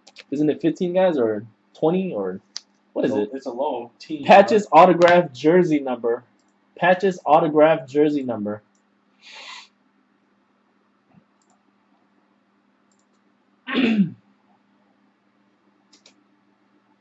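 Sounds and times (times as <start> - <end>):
faint clicks: 6.3 - 6.6, 11.1 - 11.6, 12.9 - 13.3, 15.9 - 16.2
person breathing: 9.2 - 9.7.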